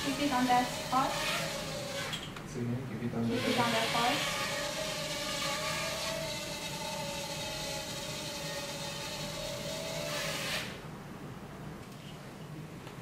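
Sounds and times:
small drone motors whining: 0.0 - 2.3, 3.2 - 10.8.

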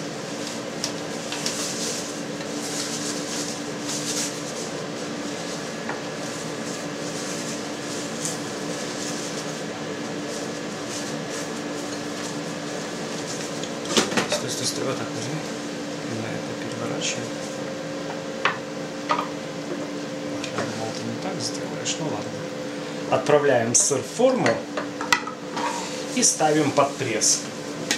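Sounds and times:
steady mechanical hum: 0.0 - 27.9
cheesecloth rustling: 0.3 - 13.6.

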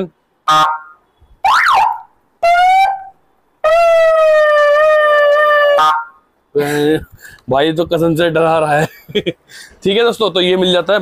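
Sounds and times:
electronic siren tones: 0.4 - 6.3.

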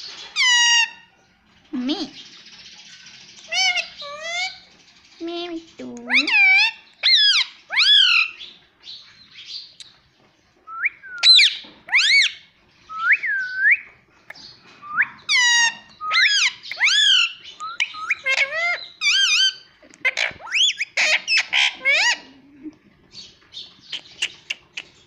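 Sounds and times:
parakeet whistling and squawking: 0.4 - 1.1, 3.5 - 4.6, 6.1 - 8.4, 10.7 - 13.9, 14.8 - 22.3.

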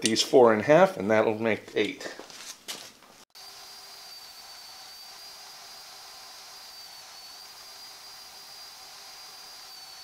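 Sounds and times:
band saw whining: 3.4 - 10.0.

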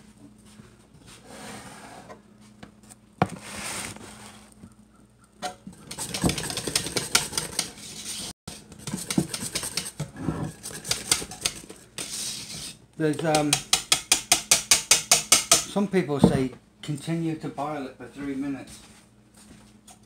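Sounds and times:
scraper scraping metal pot: 5.6 - 15.5.

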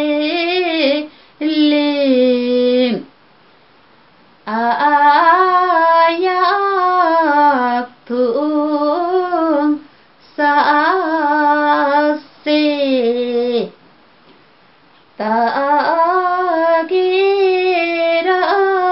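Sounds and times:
woman singing unaccompanied: 0.0 - 3.1, 4.4 - 13.8, 15.2 - 18.9.

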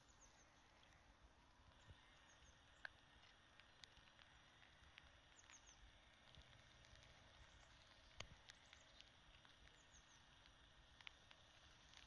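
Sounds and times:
small bird chirping: 0.0 - 1.0, 1.7 - 3.0, 5.2 - 6.2, 6.8 - 10.6.

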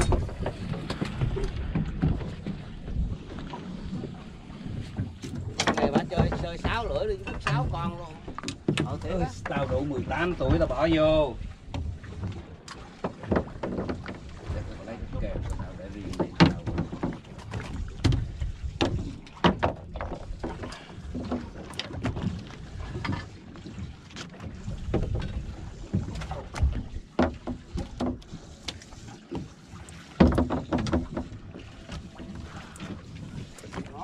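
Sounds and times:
wind on microphone: 0.0 - 12.2
boat low rumble: 0.0 - 34.0.

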